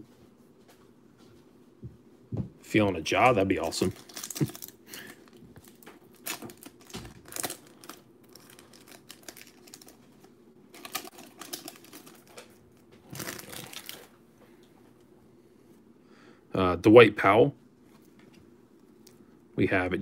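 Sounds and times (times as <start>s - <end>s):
foil wrapper crinkling and tearing: 3.2s - 14.1s.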